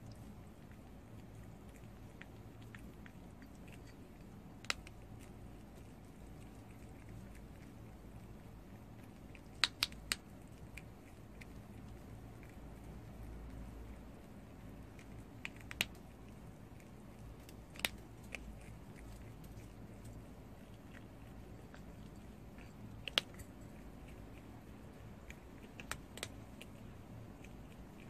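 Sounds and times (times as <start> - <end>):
prairie dog chewing pellet: 0.0 - 28.0.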